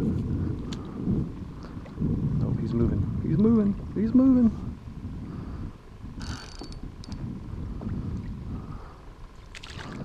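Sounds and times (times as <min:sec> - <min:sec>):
wind buffeting microphone: 0:00.0 - 0:10.0
paddle splashing water: 0:09.4 - 0:10.0.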